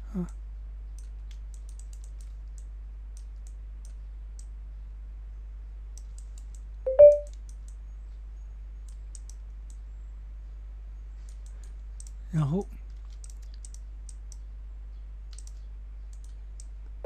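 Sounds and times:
computer mouse clicks: 0:01.0 - 0:04.5, 0:06.0 - 0:07.8, 0:08.8 - 0:09.8, 0:11.2 - 0:12.2, 0:12.9 - 0:14.5, 0:15.3 - 0:16.8.

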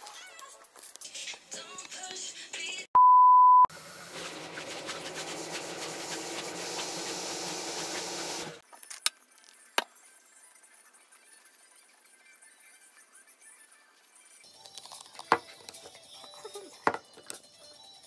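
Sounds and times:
test-card beep: 0:03.0 - 0:03.7.

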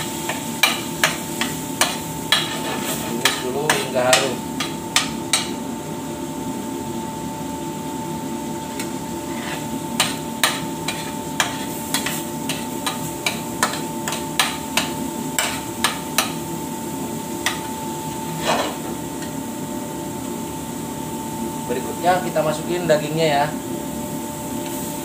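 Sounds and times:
metal spoon scraping a frying pan: 0:00.3 - 0:04.3, 0:09.3 - 0:16.4, 0:18.3 - 0:18.9.

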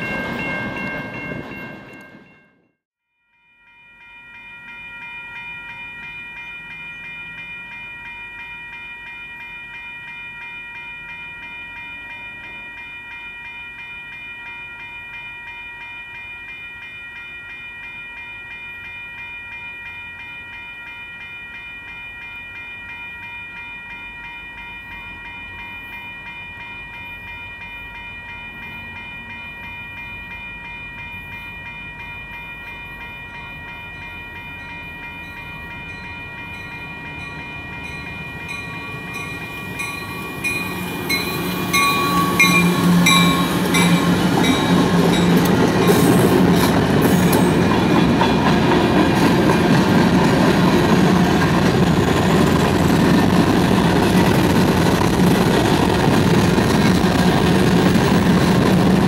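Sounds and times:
freight train rumble and wheel noise: 0:00.0 - 0:02.4, 0:24.1 - 0:59.0
crossing warning bell ringing: 0:00.0 - 0:59.0.

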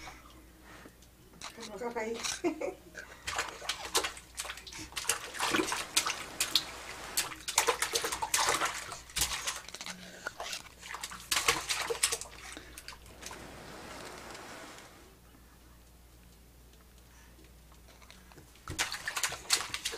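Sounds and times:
baby splashing water: 0:03.1 - 0:13.9, 0:18.6 - 0:19.9.

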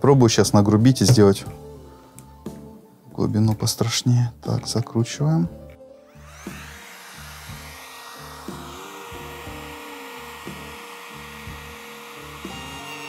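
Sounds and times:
background music with bass: 0:00.0 - 0:13.0
trim router motor whine: 0:06.0 - 0:13.0.

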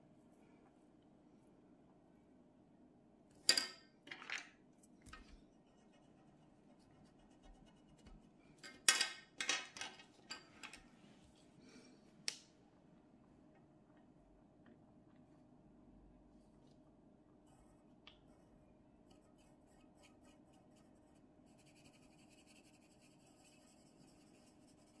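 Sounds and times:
pencil drawing on paper: 0:05.5 - 0:08.3, 0:17.4 - 0:25.0.

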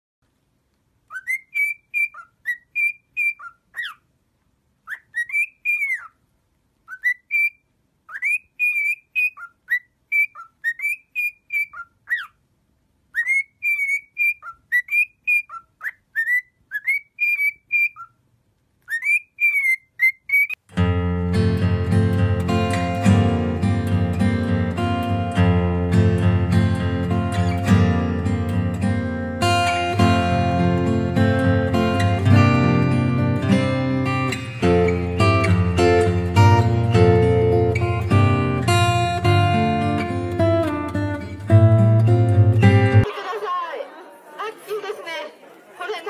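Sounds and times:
cockatiel whistling: 0:01.1 - 0:04.0, 0:04.9 - 0:06.2, 0:06.9 - 0:12.4, 0:13.1 - 0:18.2, 0:18.9 - 0:20.6.

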